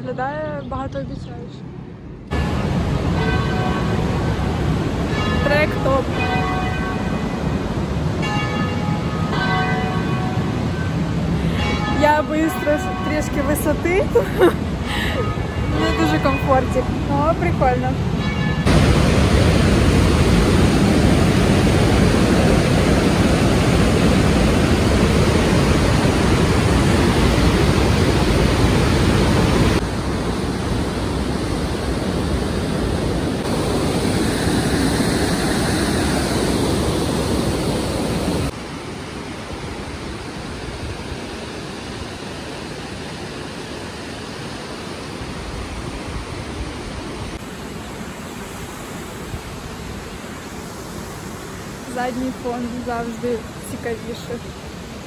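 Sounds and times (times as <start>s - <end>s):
water rushing down waterfall: 18.7s - 55.0s.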